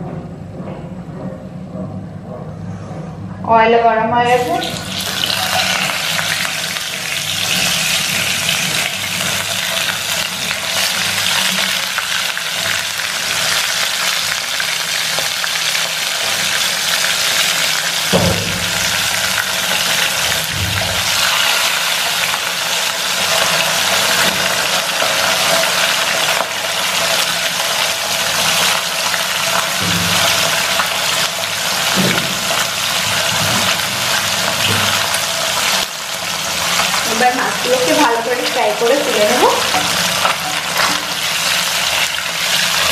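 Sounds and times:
fish sizzling in hot oil: 4.5 - 42.9
sharp knock: 18.1 - 18.8.

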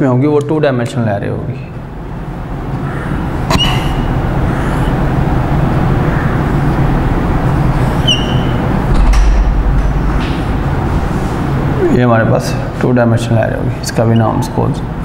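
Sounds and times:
marker squeaking on whiteboard: 3.5 - 5.0, 7.7 - 8.8.

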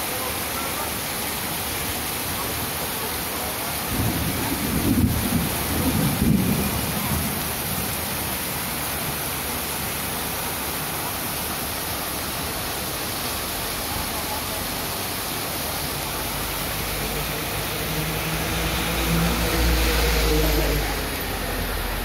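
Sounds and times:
heavy rain on pavement: 0.0 - 22.0
thunder rumble: 3.9 - 8.1.

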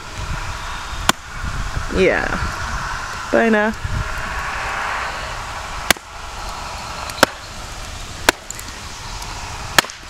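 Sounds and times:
hatchet chopping wood: 8.2 - 8.6, 9.8 - 10.0.

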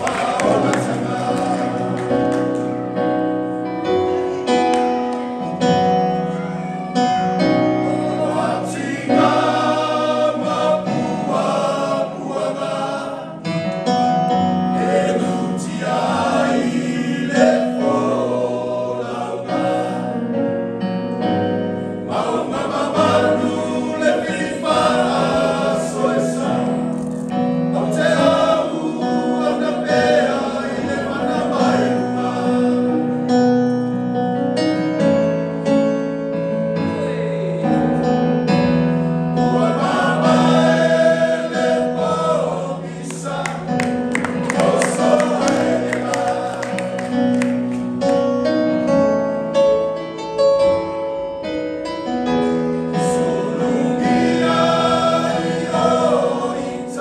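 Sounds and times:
men's choir singing: 0.0 - 2.8, 7.0 - 20.6, 21.7 - 33.6, 36.8 - 38.2, 39.4 - 48.0, 52.7 - 57.0.

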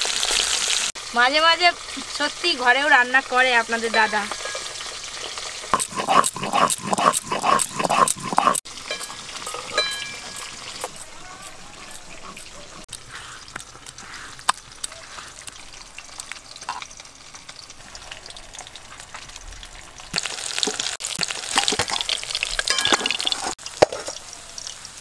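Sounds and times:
fish sizzling in oil: 0.0 - 5.8, 8.6 - 11.3, 12.9 - 25.0
oil popping: 4.1 - 19.4, 20.1 - 24.2.

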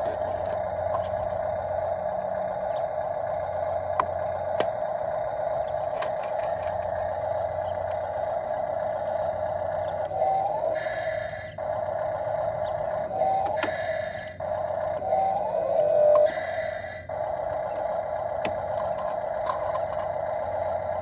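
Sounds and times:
plastic toy clicks: 0.0 - 1.4, 5.9 - 7.0, 18.4 - 20.1
steady hum: 0.0 - 21.0.

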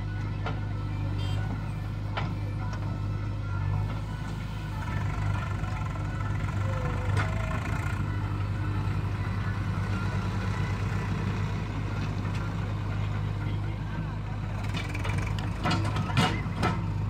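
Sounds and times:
diesel engine under load: 0.0 - 17.0.

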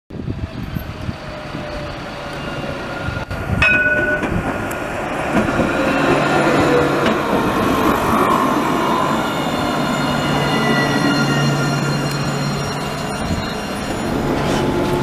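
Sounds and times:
tram wheels rolling on rails: 0.1 - 15.0
brief ringing tone: 9.9 - 15.0.

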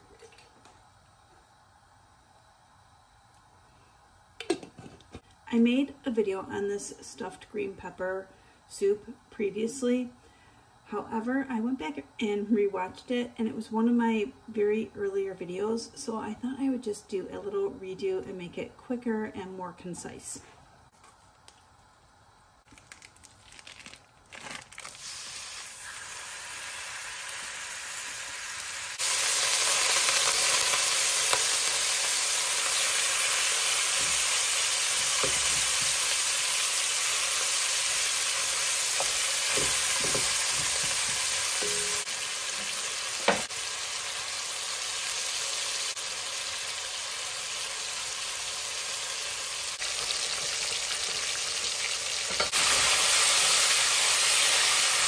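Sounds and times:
ground beef sizzling in oil: 22.8 - 55.0
meat chopper scraping a pot: 38.8 - 41.7.

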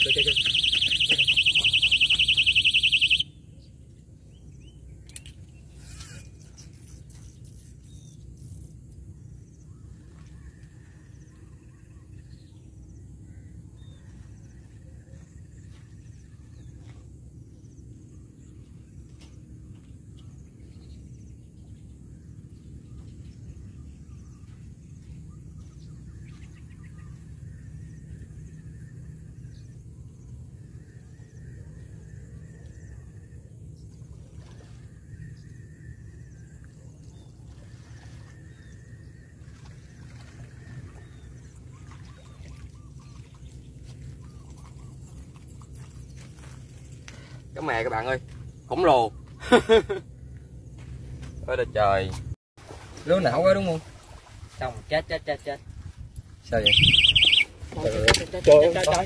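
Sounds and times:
small birds chirping: 0.0 - 3.2, 56.5 - 59.0
electronic bite alarm beeping: 0.0 - 3.4, 56.6 - 57.5
low wind rumble: 53.8 - 59.0.

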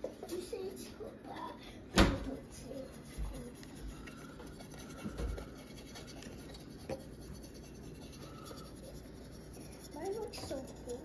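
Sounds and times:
paintbrush strokes on wood: 2.3 - 11.0.

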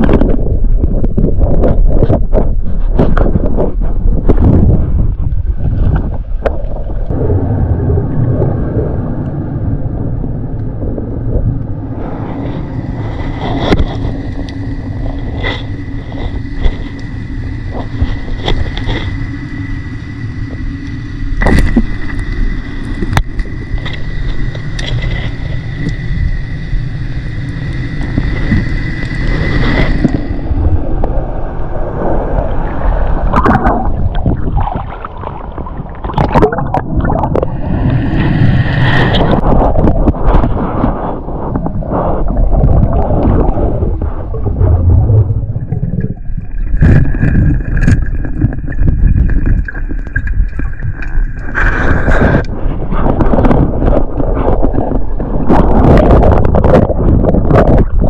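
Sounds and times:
muffled underwater rumble: 0.0 - 58.0
faint high whine: 7.0 - 39.2
water splashing: 32.8 - 58.0.

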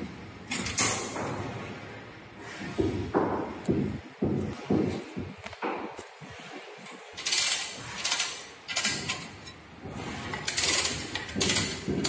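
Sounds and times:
wheelchair metal parts rattling: 7.2 - 9.6, 10.2 - 12.0.

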